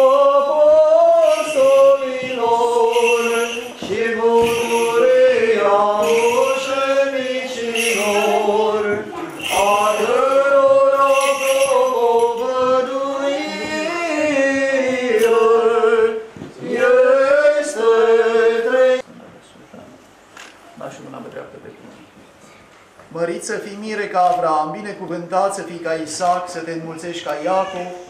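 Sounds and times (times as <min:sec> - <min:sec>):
male voices chanting: 0:00.0 - 0:19.0.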